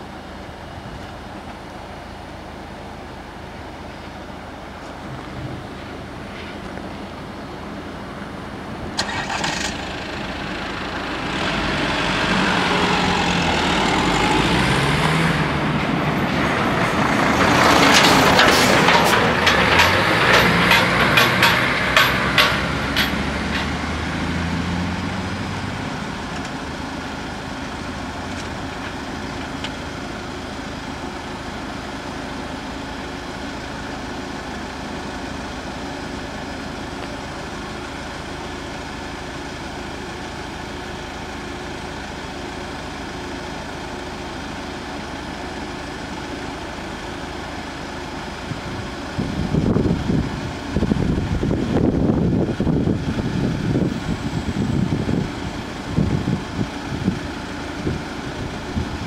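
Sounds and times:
diesel truck engine passing: 3.3 - 32.4, 33.2 - 59.0
metallic rattles and clanks: 17.4 - 23.8.

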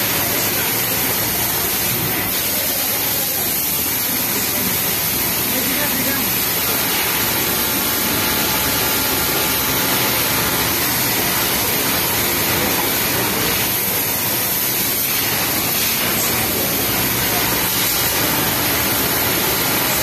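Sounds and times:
industrial sewing machines whirring: 0.0 - 20.0.

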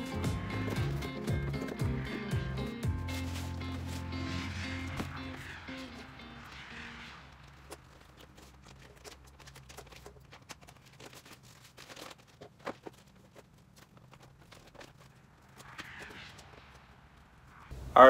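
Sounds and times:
packaging rustling and crinkling: 3.0 - 4.2, 7.4 - 16.0.

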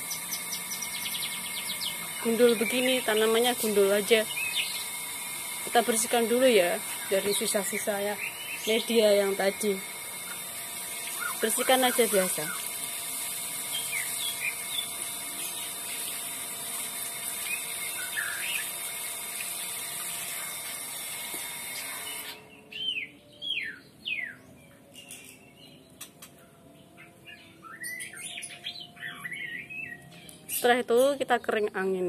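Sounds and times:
small birds chirping: 0.0 - 5.2, 6.0 - 12.8, 13.4 - 16.4, 17.3 - 19.8, 21.8 - 32.0
garden hose spraying water: 0.0 - 22.4.

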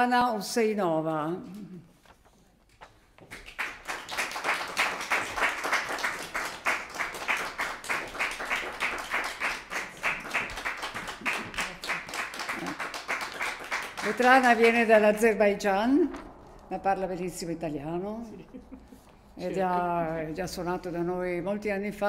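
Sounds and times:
small audience applauding: 3.2 - 15.3.

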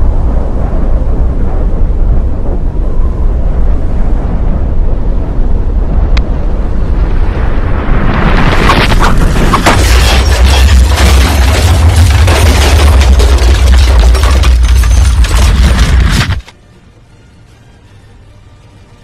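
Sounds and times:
deep booming rumble: 0.0 - 16.4
dense crackling: 6.6 - 16.5.

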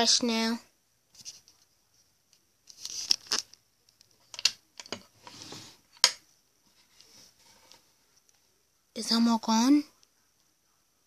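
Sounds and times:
soft rustle: 1.1 - 4.2, 6.6 - 8.6.

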